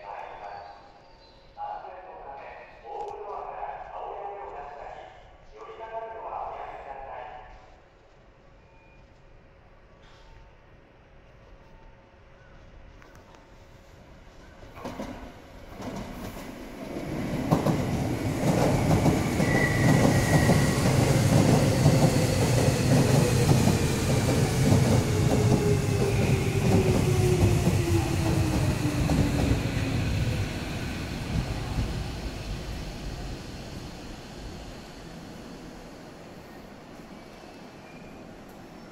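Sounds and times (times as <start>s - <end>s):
train wheels clacking on rails: 14.6s - 33.0s
electric train whine: 15.8s - 38.9s.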